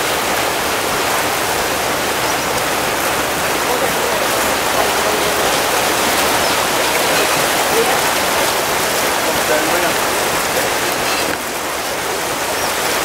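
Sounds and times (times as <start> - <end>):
paddle wheel splashing water: 0.0 - 13.0.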